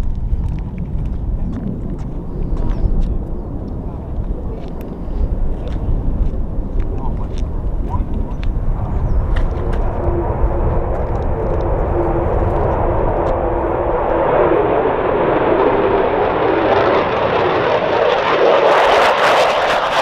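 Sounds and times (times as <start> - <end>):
fighter jet engine roar: 0.0 - 20.0.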